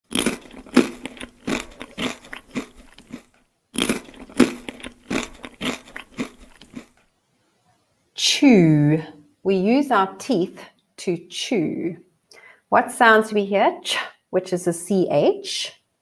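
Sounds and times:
person chewing crunchy food: 0.0 - 7.1.

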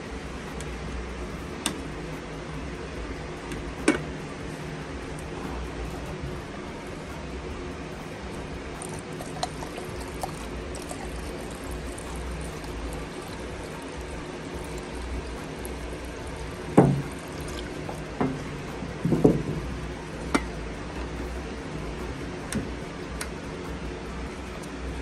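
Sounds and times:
liquid pouring into plastic cup: 8.6 - 20.5
sharp knocks: 16.8 - 17.1, 18.2 - 19.7.

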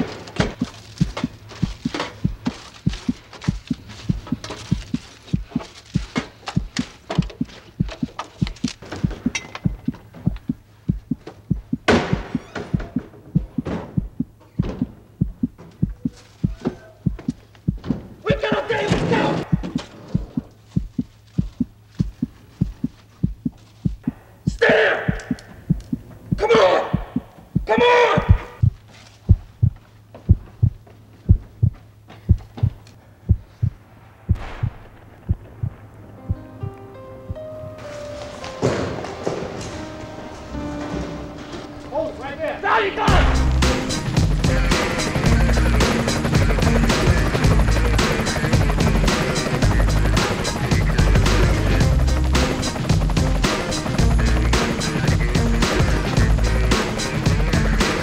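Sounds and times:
low thumping pulse: 0.4 - 17.9, 19.4 - 37.8, 43.1 - 57.8
sharp ticks: 0.5 - 12.4, 19.6 - 26.4.

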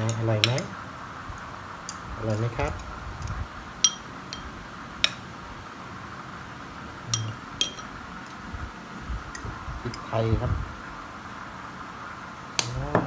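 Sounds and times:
spoon clinking against a bowl: 3.8 - 5.2, 7.1 - 7.9.

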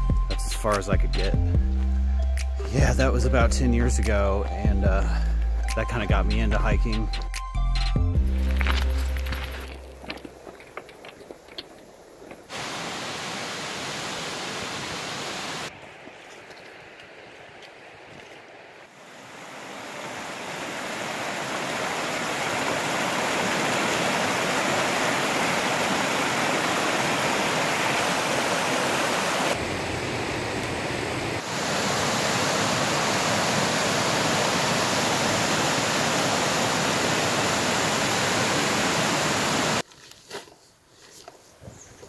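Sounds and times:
creek rushing over rocks: 8.4 - 39.8.

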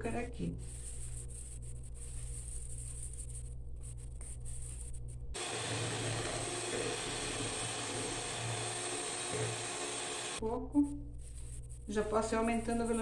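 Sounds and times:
electric hand mixer whisking: 5.4 - 10.4.

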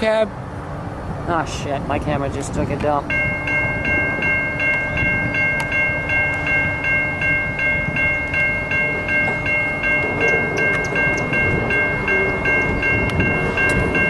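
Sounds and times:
freight train rumbling: 0.0 - 14.0
crossing bell ringing: 2.9 - 14.0.

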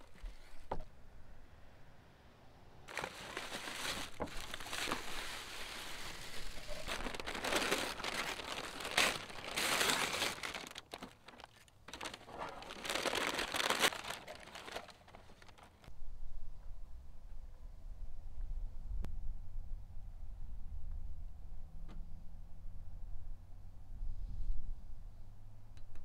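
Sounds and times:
paper crinkling and tearing: 2.9 - 15.9.

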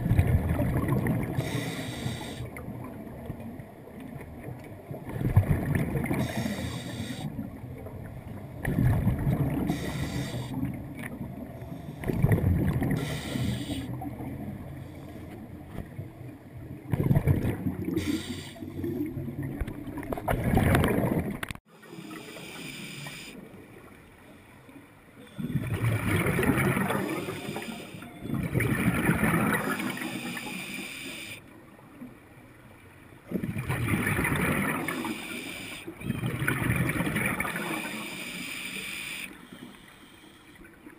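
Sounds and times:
underwater regulator bubbling: 8.6 - 15.3.

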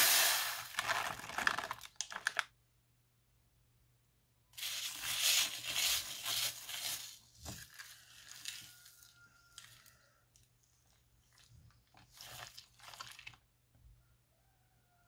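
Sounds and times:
spatula stirring crunchy slime: 4.6 - 13.5.

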